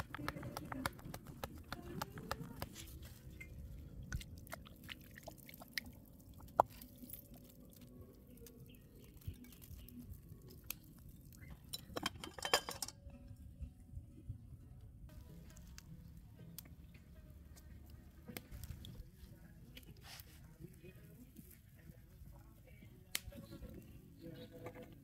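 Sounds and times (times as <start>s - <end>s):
small clicks and drips: 3.3s - 11.8s.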